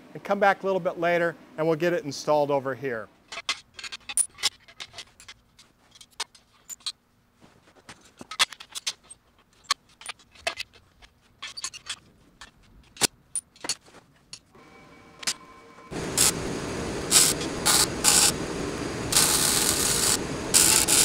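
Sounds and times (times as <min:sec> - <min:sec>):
metallic clinks of steel parts: 0:03.3 - 0:07.0, 0:08.2 - 0:14.5.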